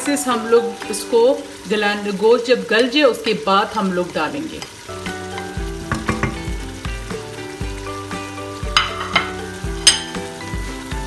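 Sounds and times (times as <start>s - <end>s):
meat sizzling in hot oil: 0.0s - 11.0s
background music held notes: 4.8s - 11.0s
sharp knocks: 5.9s - 6.6s.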